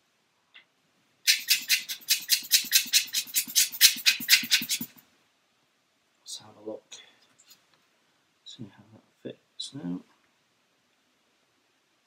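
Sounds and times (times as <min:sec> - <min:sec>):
hand tool cutting plastic: 0:01.3 - 0:05.0.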